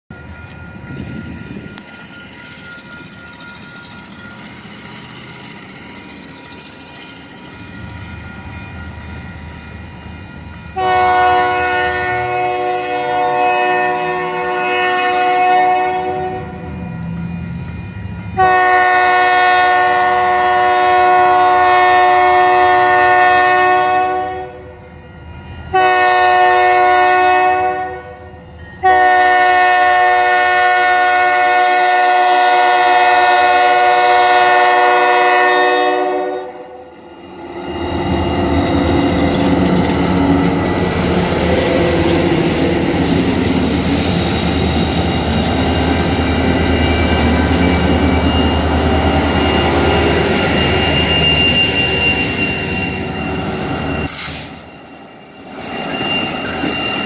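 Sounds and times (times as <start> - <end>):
locomotive air horn: 10.7 - 16.7, 18.4 - 24.8, 25.7 - 36.9
locomotive rumble: 37.0 - 54.7.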